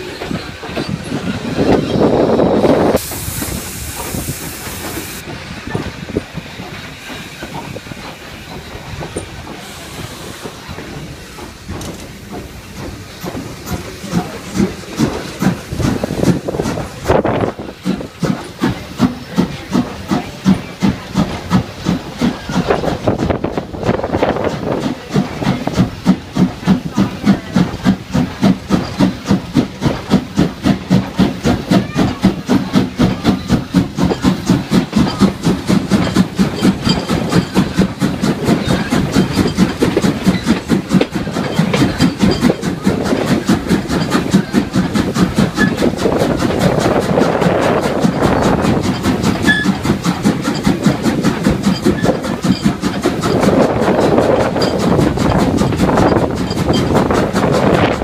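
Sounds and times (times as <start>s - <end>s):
steam hiss: 0.0s - 58.0s
steam locomotive chuffing: 0.0s - 58.0s.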